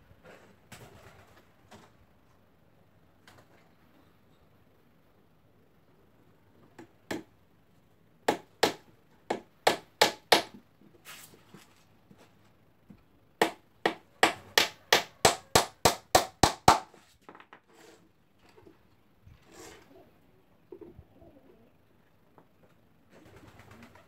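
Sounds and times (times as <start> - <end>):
hammer blows on wooden box: 8.3 - 10.6, 13.4 - 17.0.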